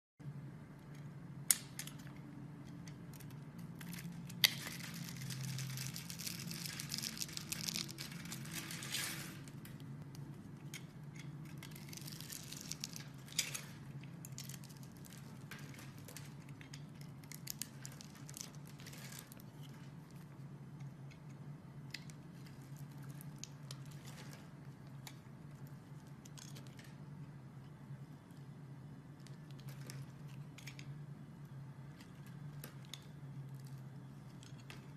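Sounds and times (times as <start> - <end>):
crunchy crackling of soap cubes: 1.2 - 27.6.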